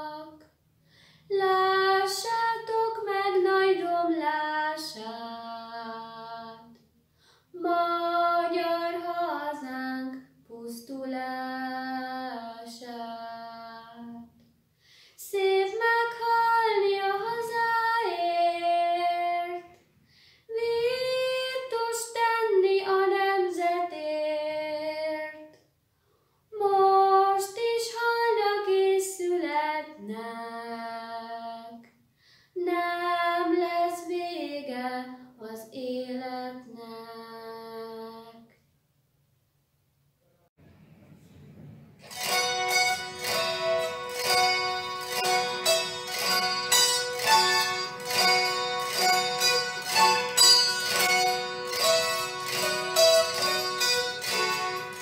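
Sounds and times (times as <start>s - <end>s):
girl singing unaccompanied: 0.0s - 0.4s, 1.3s - 6.8s, 7.5s - 14.4s, 15.2s - 19.8s, 20.5s - 25.6s, 26.6s - 31.9s, 32.6s - 38.5s.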